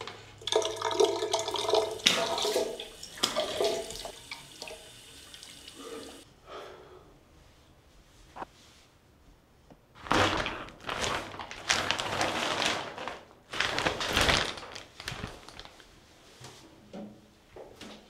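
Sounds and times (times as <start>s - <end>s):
plastic sheet crinkling: 9.9s - 16.0s.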